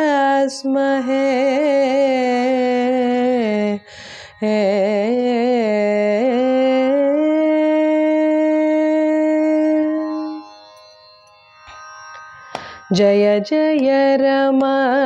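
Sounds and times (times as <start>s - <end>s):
woman singing wordless melody: 0.0s - 10.6s, 12.9s - 15.0s
woman breathing in: 3.8s - 4.4s, 12.4s - 12.9s.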